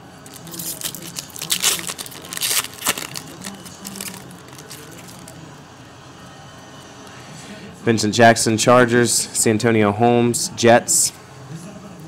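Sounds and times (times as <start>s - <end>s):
foil wrapper tearing and crinkling: 0.3s - 5.4s.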